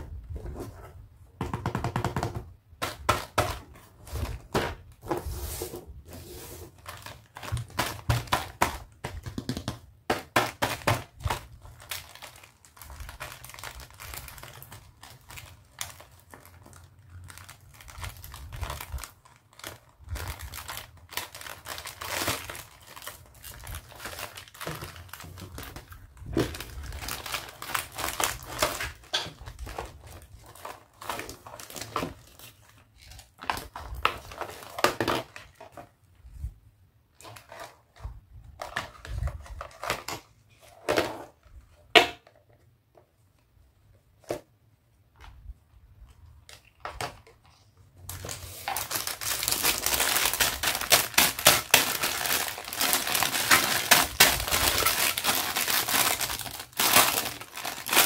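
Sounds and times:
plastic packaging crinkling: 0:10.4 - 0:35.8, 0:48.1 - 0:58.0.

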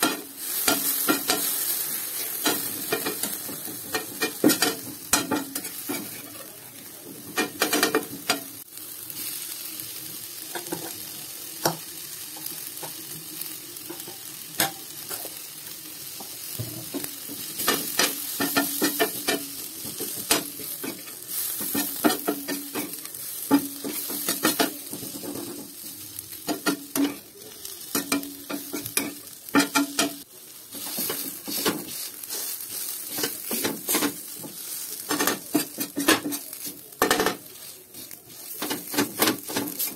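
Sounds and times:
food sizzling in oil: 0:00.0 - 0:39.9
spatula scraping a pan: 0:27.9 - 0:39.9.

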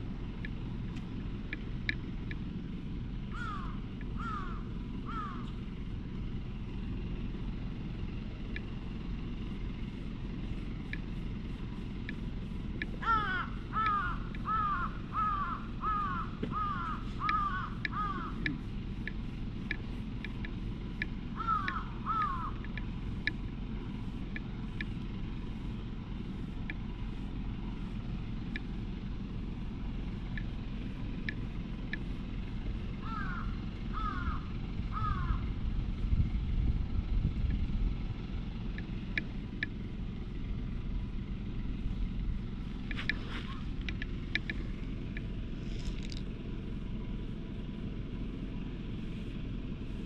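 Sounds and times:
steady low rumble: 0:00.0 - 0:50.0
crow cawing: 0:03.3 - 0:05.5, 0:13.0 - 0:18.4, 0:21.4 - 0:22.6, 0:33.0 - 0:35.5
short high ticks: 0:10.8 - 0:13.1, 0:16.8 - 0:23.4, 0:42.8 - 0:46.3.

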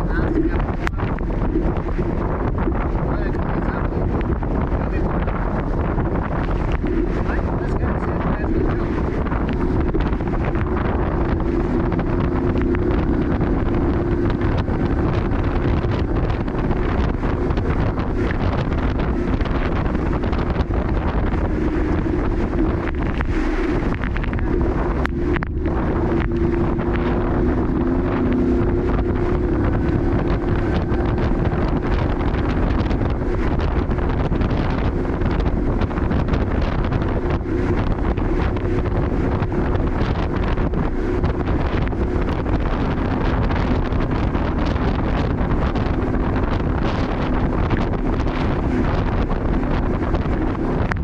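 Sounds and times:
boat engine drone: 0:00.0 - 0:51.0
hull through choppy water: 0:00.0 - 0:51.0
wind buffeting microphone: 0:00.0 - 0:51.0.

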